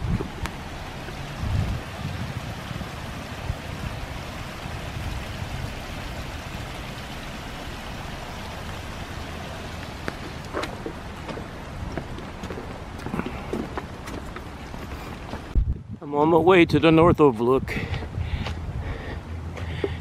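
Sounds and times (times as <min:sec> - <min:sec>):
creek water rushing: 0:00.0 - 0:15.6
light rain: 0:00.0 - 0:15.6.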